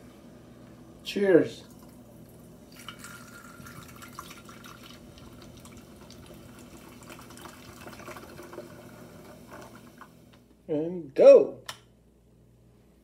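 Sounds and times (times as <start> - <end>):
soda pouring and fizzing: 1.6 - 10.2.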